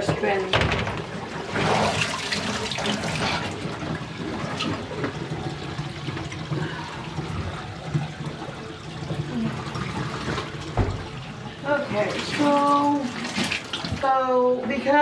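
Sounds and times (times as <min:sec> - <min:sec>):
water pouring into drain: 0:01.2 - 0:14.1.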